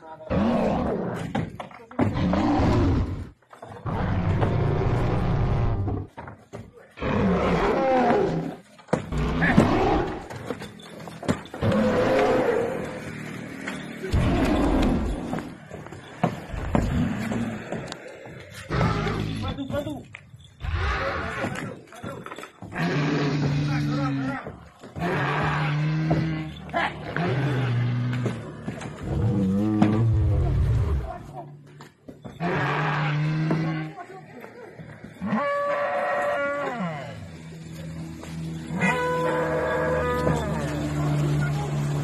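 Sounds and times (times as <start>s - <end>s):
dinosaur roars: 2.0s - 6.0s, 7.0s - 10.3s, 11.6s - 13.1s, 22.8s - 24.2s, 25.0s - 28.4s, 29.0s - 31.2s, 32.4s - 34.0s
deep growling dinosaur roars: 2.1s - 6.0s, 11.6s - 13.1s, 29.0s - 31.1s.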